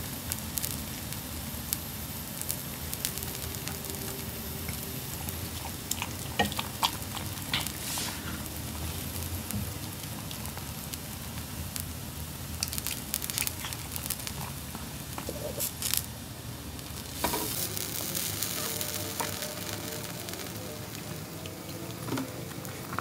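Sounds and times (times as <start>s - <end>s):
faint background hiss: 0.0s - 23.0s
puppy chewing food: 3.1s - 12.0s, 12.6s - 15.9s.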